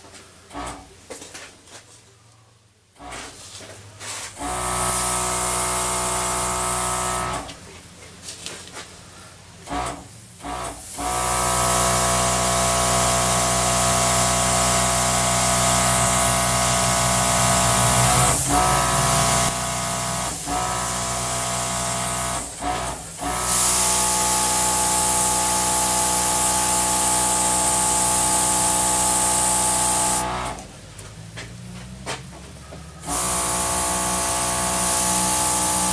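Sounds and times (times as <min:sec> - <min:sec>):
air blow gun hissing: 0:10.4 - 0:30.3.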